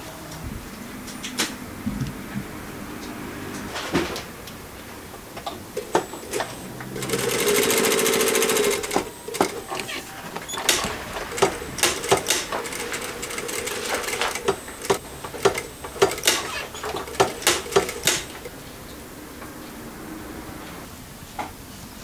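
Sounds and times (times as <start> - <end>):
sewing machine clicking: 5.8 - 18.5
sewing machine humming: 5.8 - 18.6.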